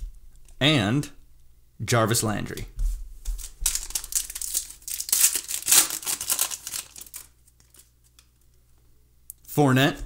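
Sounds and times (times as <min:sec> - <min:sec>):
foil wrapper crinkling: 0:03.2 - 0:08.3.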